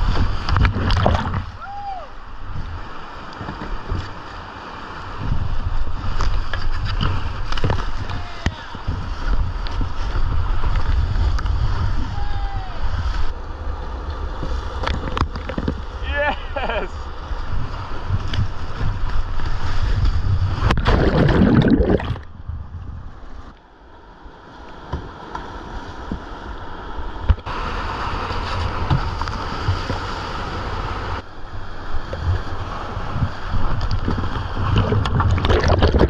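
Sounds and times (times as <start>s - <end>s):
whitewater rushing and splashing: 0.0s - 13.4s, 14.4s - 22.3s, 24.8s - 36.0s
wind buffeting microphone: 5.0s - 13.6s, 17.1s - 23.5s, 27.2s - 36.0s.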